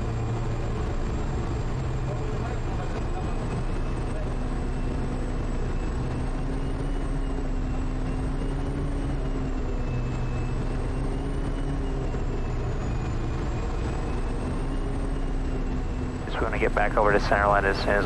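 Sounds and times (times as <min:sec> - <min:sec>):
turboprop engine drone: 0:00.0 - 0:18.0
high turbine whine: 0:16.2 - 0:18.0.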